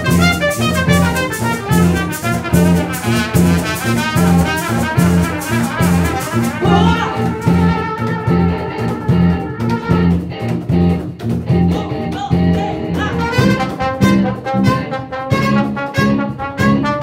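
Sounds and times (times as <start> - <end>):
trumpet and trombone: 0.0 - 10.3, 13.1 - 17.0
congas and drums: 0.0 - 17.0
electric bass line: 0.0 - 17.0.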